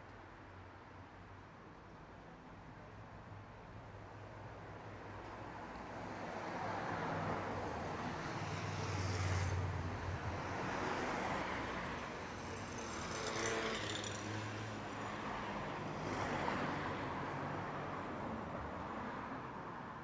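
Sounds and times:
vehicles passing: 0:05.5 - 0:20.0
tyre and road noise: 0:07.0 - 0:17.8.

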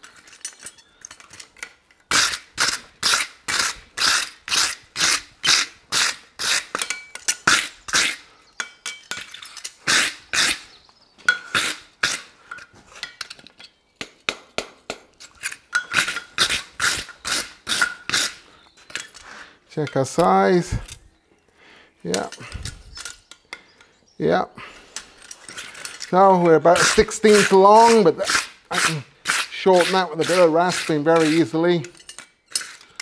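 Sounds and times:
wire brush scrubbing metal: 0:26.3 - 0:32.8.

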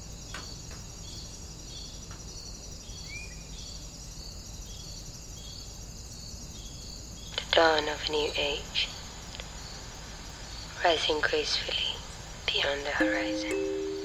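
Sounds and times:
insects chirping: 0:00.0 - 0:14.0
high-pitched insect drone: 0:13.0 - 0:14.0.

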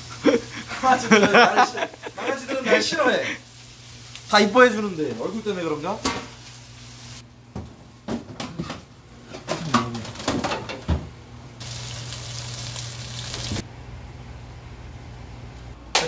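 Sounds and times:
food sizzling in frying pan: 0:00.0 - 0:07.3, 0:11.6 - 0:13.6
kitchen knocks and clatters: 0:06.0 - 0:06.4, 0:07.5 - 0:11.2.

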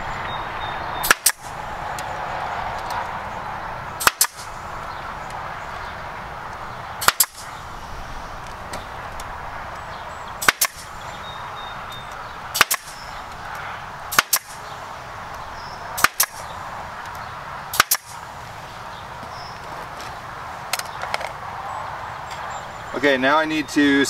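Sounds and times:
nail gun firing: 0:01.0 - 0:01.5, 0:04.0 - 0:04.6, 0:07.0 - 0:07.5, 0:10.4 - 0:10.9, 0:12.6 - 0:13.0, 0:14.1 - 0:14.6, 0:16.0 - 0:16.4, 0:17.7 - 0:18.2.

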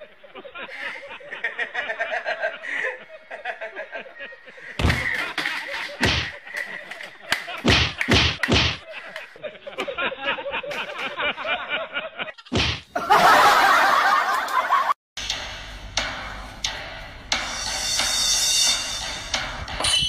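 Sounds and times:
sharp smacks: 0:06.0 - 0:06.4, 0:07.4 - 0:08.9, 0:12.5 - 0:12.9.

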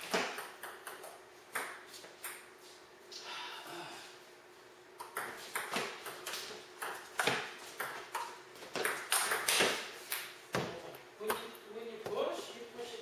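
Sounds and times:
ping-pong ball clicking: 0:05.0 - 0:06.2.

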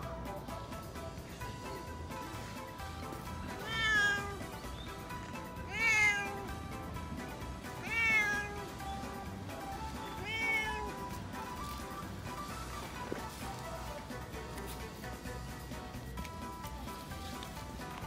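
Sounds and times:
background music: 0:00.0 - 0:18.0
cat meowing: 0:03.5 - 0:04.6, 0:05.3 - 0:06.6, 0:07.6 - 0:09.0, 0:10.0 - 0:11.2.

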